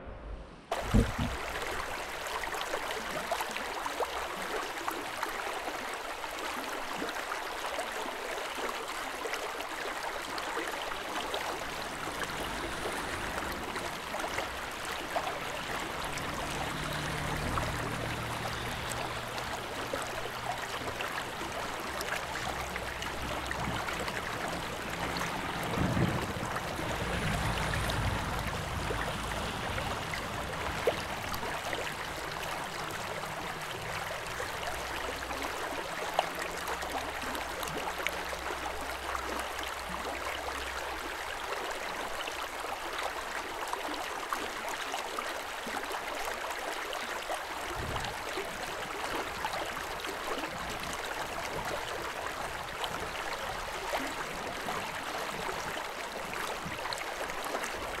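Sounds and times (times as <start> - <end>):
low hum: 0.0 - 1.5
flowing water rushing: 0.0 - 58.0.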